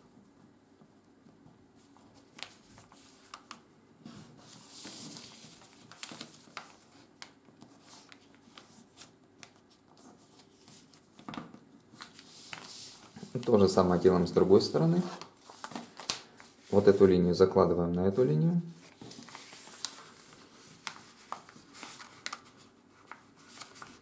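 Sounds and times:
paper being folded and creased: 0:01.8 - 0:17.4, 0:18.8 - 0:24.0
paper rustling swish: 0:14.5 - 0:17.3.

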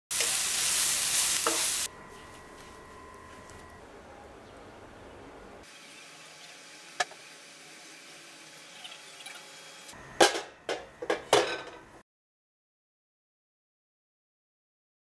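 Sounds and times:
metal pot knocking and clanking: 0:10.2 - 0:11.8.

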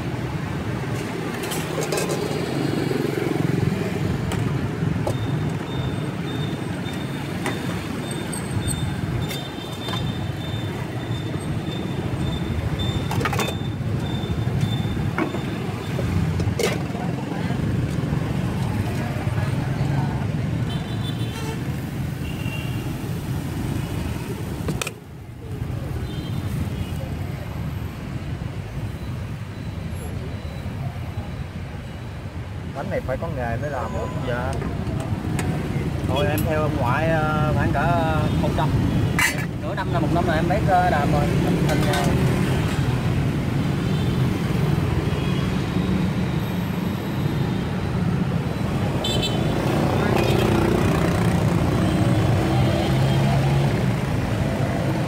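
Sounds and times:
road traffic rumble: 0:00.0 - 0:55.0.

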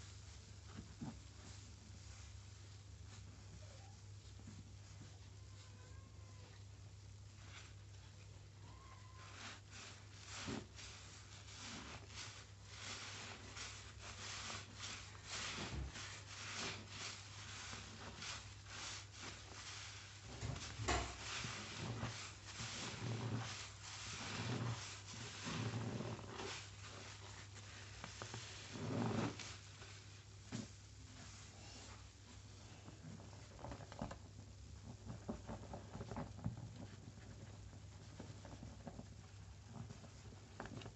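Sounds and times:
sponge squelching in foam: 0:08.7 - 0:34.0.

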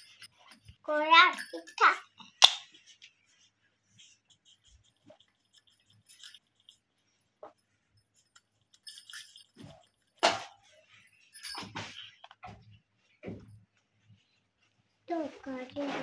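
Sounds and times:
pencil scratching on paper: 0:02.8 - 0:10.2
small clinks and taps: 0:04.6 - 0:13.8.

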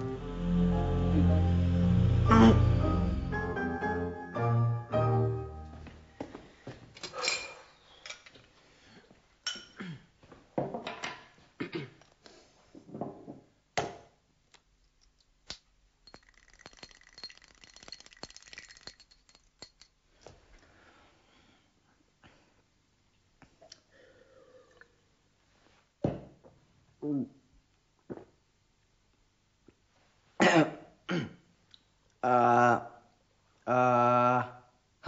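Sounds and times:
small glass clicks and taps: 0:15.5 - 0:20.0
glass bottles clinking: 0:16.0 - 0:20.0.

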